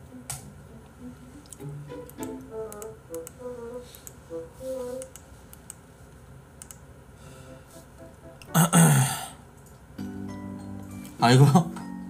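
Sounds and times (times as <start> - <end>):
soft background music: 0.0 - 5.2, 7.3 - 9.2, 10.0 - 12.0
faint clicks: 6.6 - 6.8.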